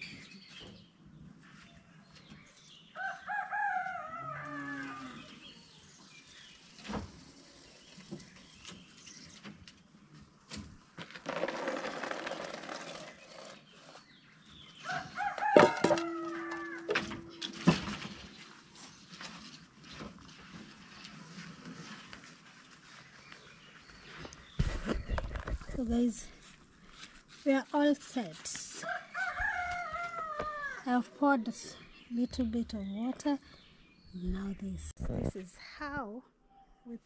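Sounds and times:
rooster crowing: 3.0s - 5.4s, 14.8s - 17.4s, 28.8s - 30.8s.

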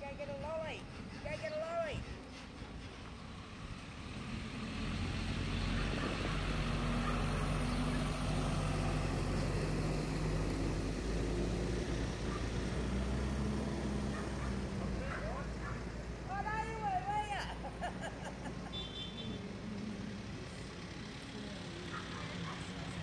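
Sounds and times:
utility vehicle passing: 0.0s - 23.0s
fire truck diesel engine passing: 2.2s - 16.4s.

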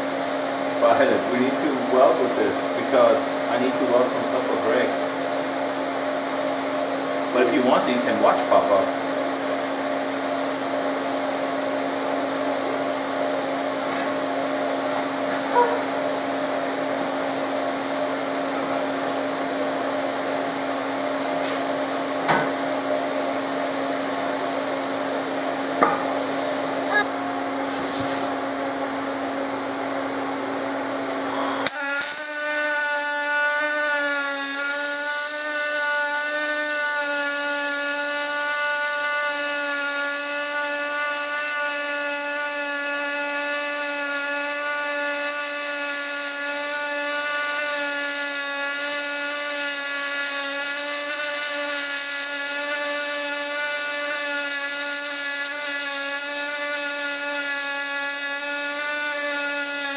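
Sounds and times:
welder hum: 0.0s - 59.9s
welding arc buzzing with hiss: 0.0s - 59.9s
welding arc striking click: 31.1s - 33.5s.

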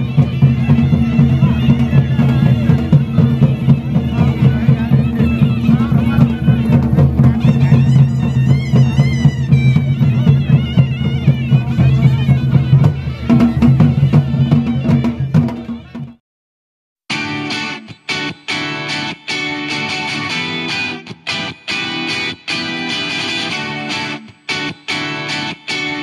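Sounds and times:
reed pipe melody: 0.0s - 16.1s
beating drums: 0.0s - 16.2s.

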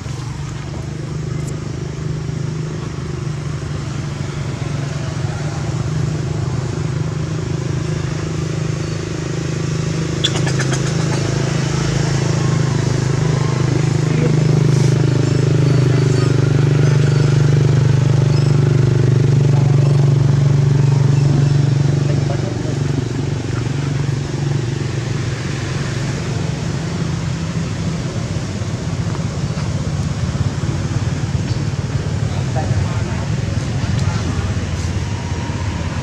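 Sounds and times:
motor engine humming: 0.0s - 36.0s.

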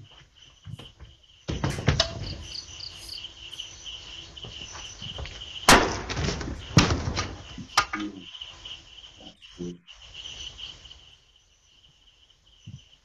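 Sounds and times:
crickets chirping: 0.0s - 13.0s
loud sharp knocks: 0.7s - 2.6s, 4.4s - 8.1s.

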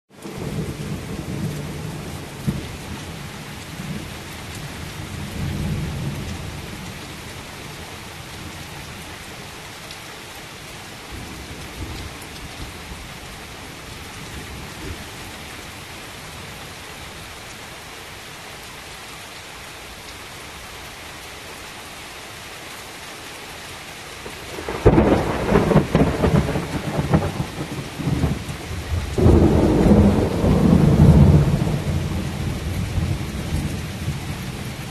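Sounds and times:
heavy rain falling: 0.1s - 34.9s
thunder rumbling: 24.3s - 34.9s.

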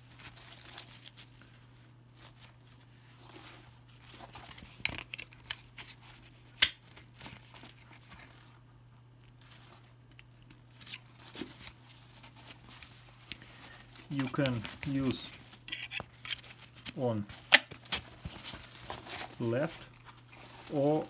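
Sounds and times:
nylon straps rustling: 9.3s - 21.0s.

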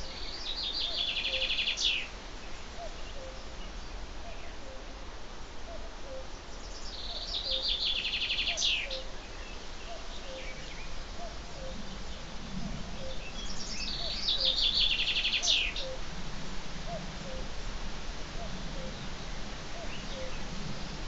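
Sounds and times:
songbird trilling: 0.1s - 2.1s, 13.0s - 16.0s.

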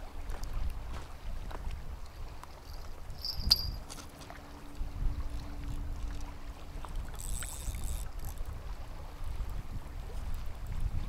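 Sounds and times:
wind buffeting microphone: 0.0s - 4.0s, 4.8s - 11.0s
fishing reel whirring: 2.6s - 4.0s, 6.8s - 8.6s
fishing rod cast whizz and click: 7.1s - 8.4s.

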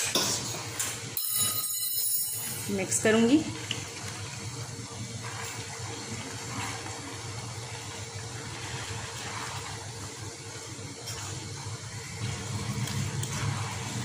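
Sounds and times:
spaghetti tossed in sauce pan: 3.6s - 14.0s.

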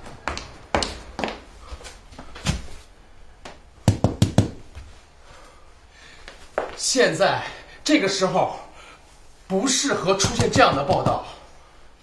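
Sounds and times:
hard-soled footsteps on hard floor: 0.0s - 5.0s, 6.2s - 6.8s, 10.2s - 11.4s.

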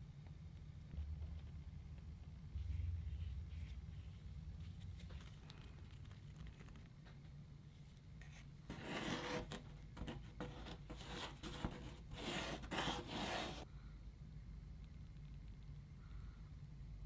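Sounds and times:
wooden stick scraping: 8.2s - 13.6s.

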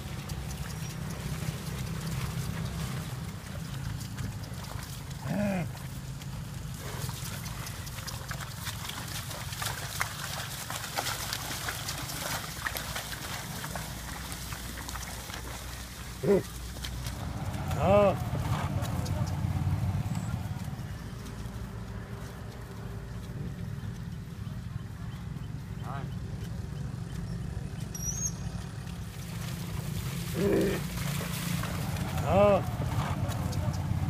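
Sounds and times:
splashing and squelching in mud: 0.0s - 23.3s, 26.6s - 34.0s
steady low rumble: 13.2s - 34.0s.

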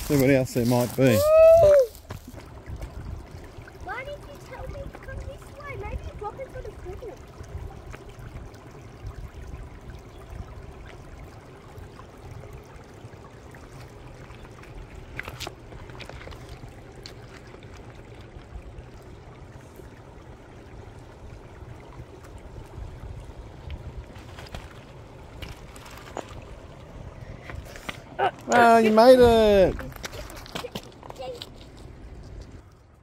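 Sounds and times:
stones knocking underfoot: 0.0s - 3.0s, 15.1s - 17.8s, 24.1s - 26.5s, 29.2s - 32.6s
constant low rumble: 0.0s - 33.0s
creek water trickling over rocks: 0.0s - 33.0s.

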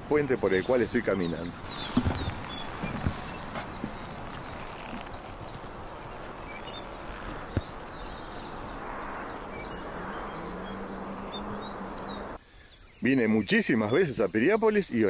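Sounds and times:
small birds chirping: 0.0s - 15.0s
footsteps on wooden planks: 1.6s - 7.8s.

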